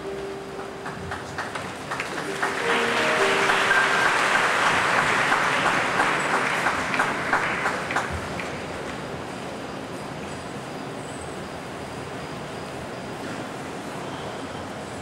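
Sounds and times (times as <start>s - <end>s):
faint instrumental music: 0.0s - 5.4s
crowd applauding: 0.6s - 9.0s.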